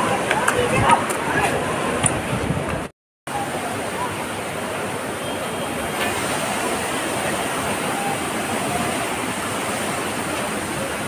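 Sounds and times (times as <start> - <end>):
river rushing over rocks: 0.0 - 11.0.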